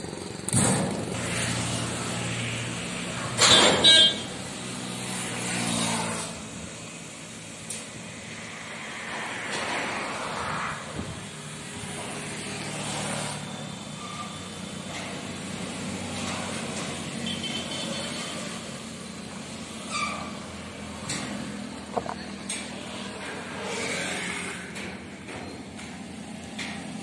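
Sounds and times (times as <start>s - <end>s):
van engine running at low speed: 0.0s - 3.4s.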